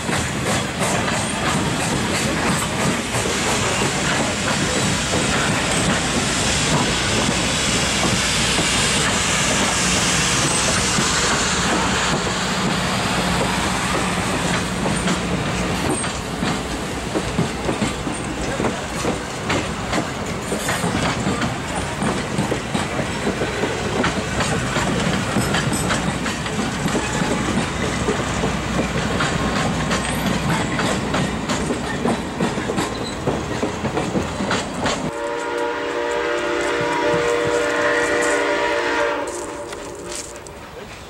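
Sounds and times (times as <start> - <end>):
train wheels clicking over rail joints: 0.0 - 41.0
distant locomotive horn: 35.1 - 40.7.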